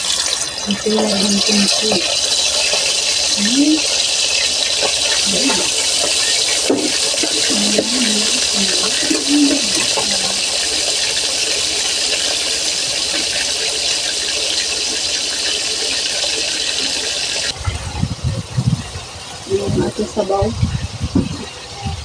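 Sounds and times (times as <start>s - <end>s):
fish sizzling in hot oil: 0.0s - 17.6s.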